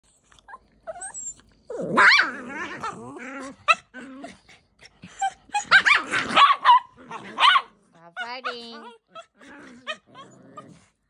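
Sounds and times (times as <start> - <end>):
small dogs yipping: 0.4 - 2.9, 5.1 - 10.8.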